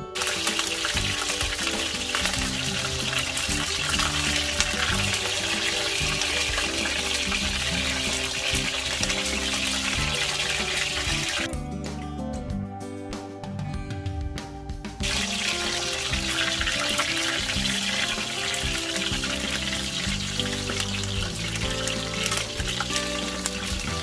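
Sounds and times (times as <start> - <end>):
background music: 0.0 - 24.0
water running from a tap: 0.1 - 11.5, 15.0 - 24.0.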